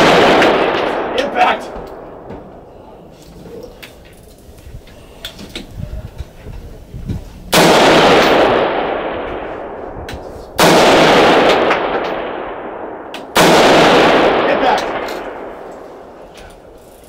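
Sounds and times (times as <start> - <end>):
rifle shots with rolling echo: 0.0 - 2.7, 7.5 - 16.8.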